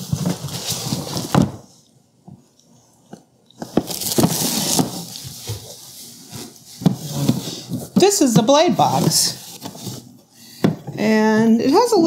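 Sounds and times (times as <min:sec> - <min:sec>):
plastic wrap rustling and crinkling: 0:00.0 - 0:01.8, 0:03.6 - 0:10.2.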